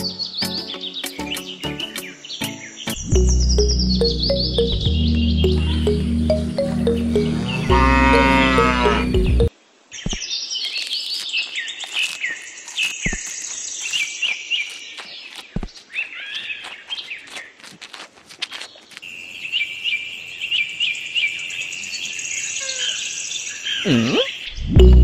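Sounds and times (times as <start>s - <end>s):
birds chirping and singing: 0.0s - 17.3s.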